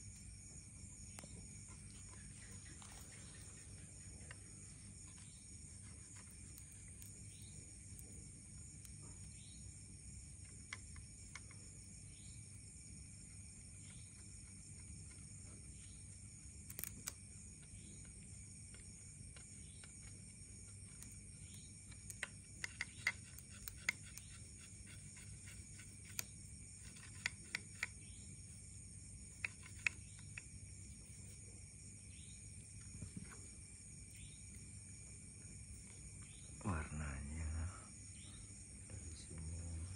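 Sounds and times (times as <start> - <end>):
steady high hum: 0.0 - 39.9
fingernail scratching bamboo: 21.9 - 28.0, 29.3 - 30.4.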